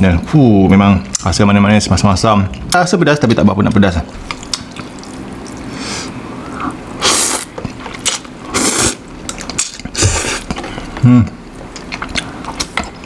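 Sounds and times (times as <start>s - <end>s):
man slurping noodles: 5.8s - 7.5s, 8.5s - 9.0s.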